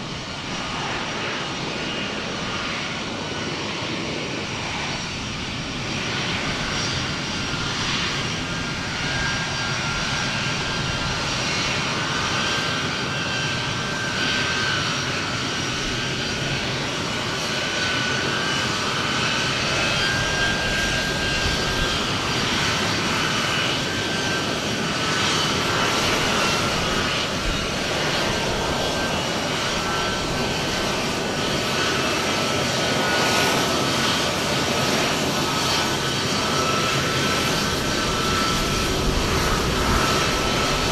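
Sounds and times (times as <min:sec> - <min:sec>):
jet engines whining: 0:00.0 - 0:40.9.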